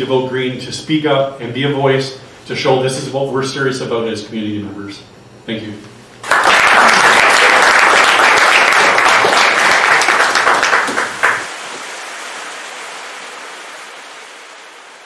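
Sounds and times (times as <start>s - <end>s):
audience applauding: 6.2s - 14.0s
even hiss: 8.5s - 15.0s.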